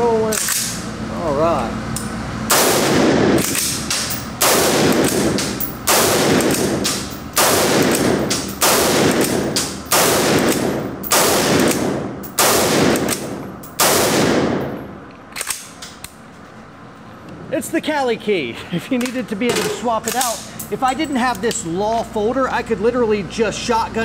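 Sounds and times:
rifle shots echoing: 0:02.5 - 0:15.0.

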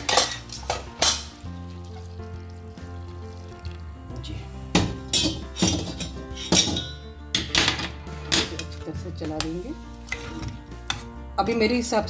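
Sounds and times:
background music: 0:00.0 - 0:12.0
hot water pouring into a pot: 0:01.3 - 0:04.4
ladle scraping a metal pot: 0:05.1 - 0:06.9, 0:10.0 - 0:11.1.

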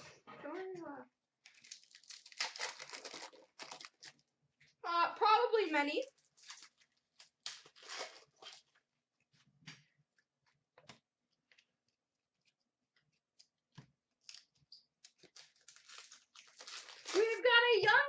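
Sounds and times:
cards rustling and clicking: 0:13.0 - 0:17.9.

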